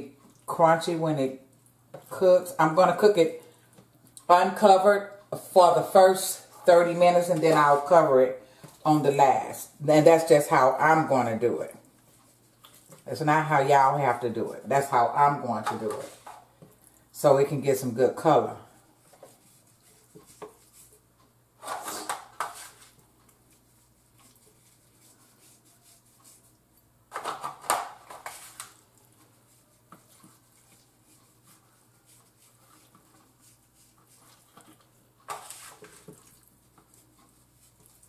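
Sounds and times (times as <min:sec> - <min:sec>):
kitchen clatter and rustle: 0:15.6 - 0:16.6, 0:21.6 - 0:23.1, 0:27.1 - 0:31.6, 0:32.6 - 0:37.9.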